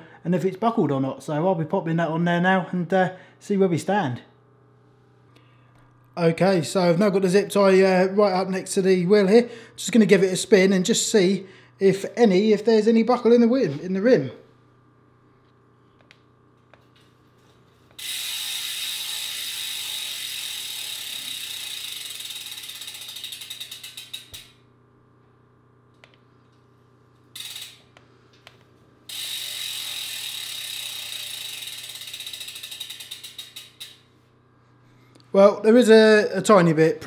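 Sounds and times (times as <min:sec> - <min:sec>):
bicycle freewheel ratcheting: 0:17.0 - 0:24.7, 0:27.2 - 0:28.0, 0:29.0 - 0:34.1.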